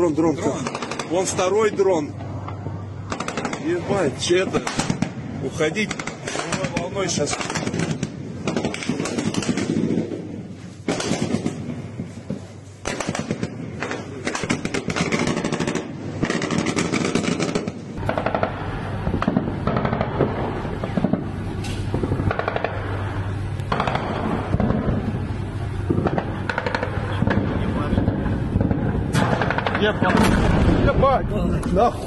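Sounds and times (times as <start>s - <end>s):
automatic gunfire bursts: 0.5s - 1.3s, 3.1s - 3.8s, 4.5s - 10.2s, 10.9s - 11.6s, 12.8s - 18.6s, 19.2s - 20.4s, 22.2s - 22.8s, 23.7s - 25.0s, 26.0s - 27.5s, 28.6s - 30.6s.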